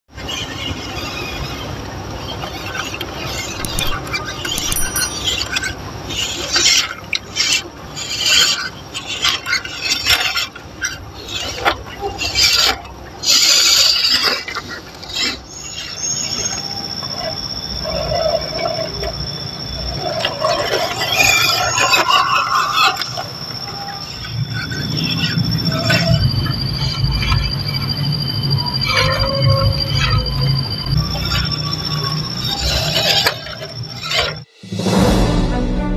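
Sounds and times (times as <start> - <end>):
steady high tone: 3.6 - 5.4, 34.5 - 35.9.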